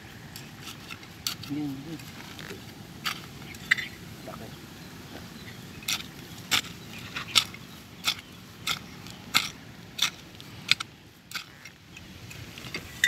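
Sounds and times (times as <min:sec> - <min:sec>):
hand tool digging soil: 0:00.0 - 0:04.0, 0:05.7 - 0:13.0.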